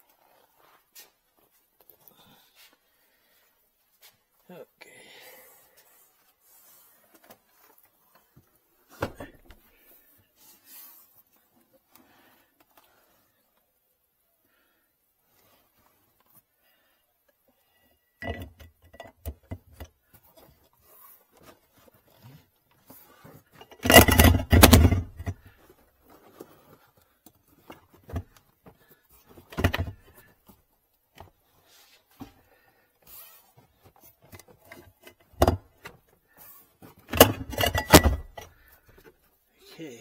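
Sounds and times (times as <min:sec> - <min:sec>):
hardware clunking and rattling: 0:08.9 - 0:09.6, 0:18.2 - 0:20.5, 0:23.4 - 0:25.6, 0:29.3 - 0:30.3, 0:34.2 - 0:36.1, 0:36.8 - 0:39.1.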